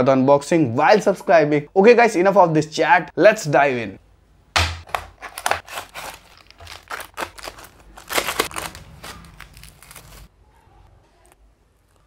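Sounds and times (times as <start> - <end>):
cardboard packaging crackling and rustling: 5.2 - 10.3.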